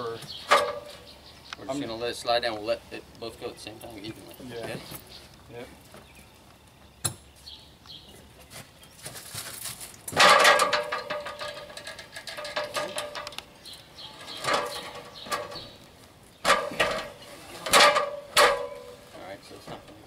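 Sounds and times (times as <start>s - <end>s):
battery sliding down metal ladder: 9.2s - 13.4s, 14.1s - 15.8s, 16.4s - 19.0s.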